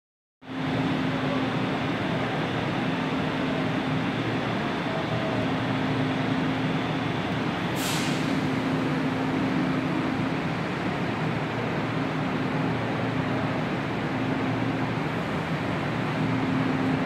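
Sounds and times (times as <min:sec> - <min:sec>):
electric train equipment humming: 0:00.5 - 0:17.0
air hiss: 0:07.7 - 0:08.6.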